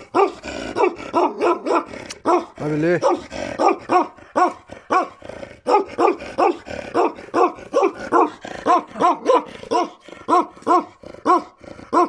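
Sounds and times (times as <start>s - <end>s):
dog barking: 0.0s - 12.0s.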